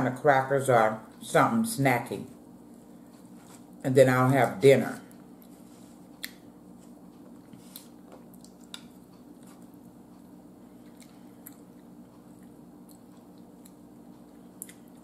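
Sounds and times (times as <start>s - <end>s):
faint steady hum: 0.0s - 15.0s
person chewing food: 5.1s - 15.0s.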